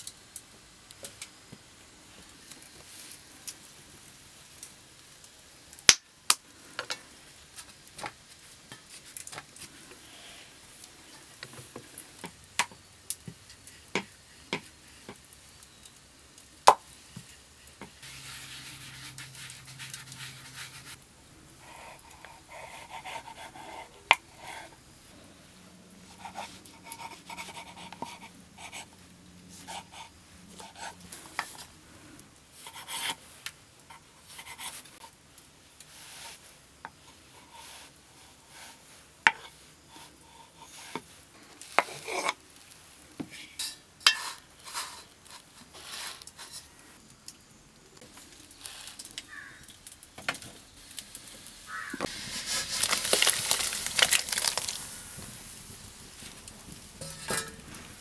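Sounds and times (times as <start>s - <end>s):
wok hissing: 16.9s - 28.3s, 29.6s - 47.0s, 50.4s - 58.0s
knife scraping dough: 18.0s - 21.0s, 26.1s - 28.9s, 37.1s - 42.4s.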